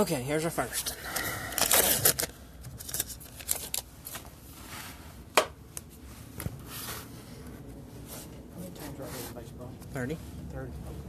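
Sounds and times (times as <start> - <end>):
cards rustling: 0.8 - 4.4.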